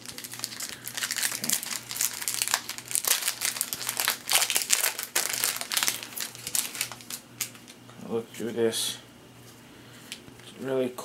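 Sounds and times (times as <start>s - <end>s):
wrapper crinkling: 0.0s - 7.8s.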